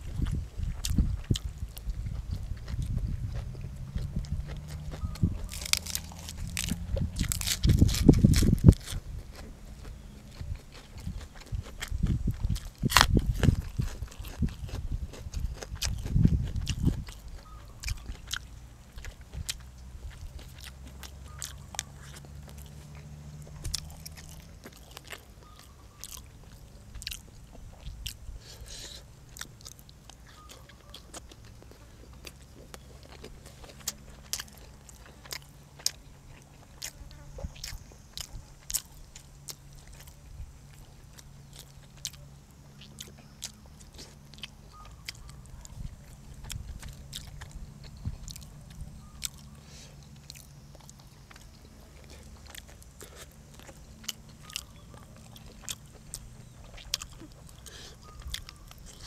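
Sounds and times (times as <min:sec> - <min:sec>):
chewing crunchy food: 0:00.0 - 0:59.0
low hum: 0:00.0 - 0:59.0.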